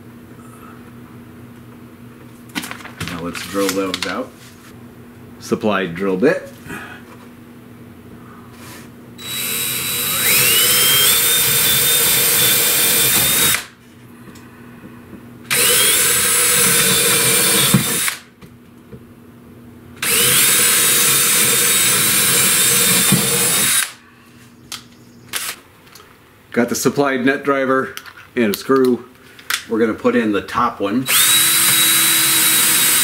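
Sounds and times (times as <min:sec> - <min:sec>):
cordless drill whining: 0:09.2 - 0:13.7, 0:15.5 - 0:18.2, 0:20.0 - 0:24.0, 0:31.0 - 0:33.0.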